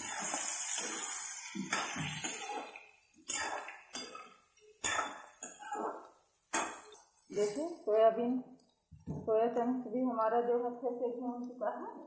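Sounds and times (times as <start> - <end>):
food sizzling in hot oil: 0.0 - 3.7, 6.6 - 7.9.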